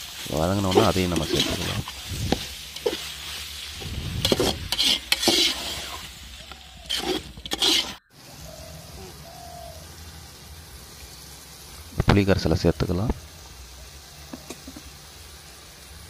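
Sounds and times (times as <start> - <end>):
food sizzling: 0.0 - 16.0
ladle scraping metal pot: 0.6 - 2.0, 4.1 - 8.1.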